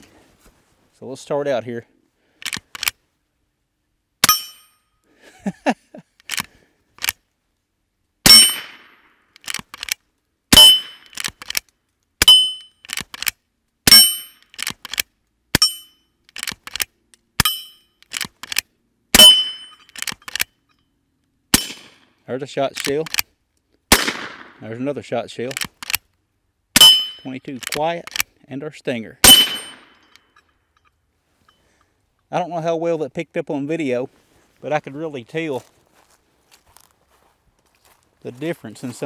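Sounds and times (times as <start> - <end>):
rifle lever clacking: 2.4 - 3.0, 6.2 - 7.2, 9.4 - 10.0, 10.6 - 18.6, 19.2 - 20.5, 22.8 - 23.3, 25.5 - 26.0, 26.8 - 28.3, 29.2 - 30.2
steel plate ringing: 4.2 - 5.0, 8.3 - 8.8, 10.6 - 11.1, 12.2 - 12.8, 13.9 - 14.4, 15.6 - 16.1, 17.4 - 18.0, 19.2 - 19.9, 26.8 - 27.4, 29.2 - 30.4
rifle shots: 8.2 - 9.9, 10.5 - 11.6, 19.2 - 20.2, 21.5 - 22.0, 23.9 - 24.6, 26.8 - 27.8, 29.2 - 30.1.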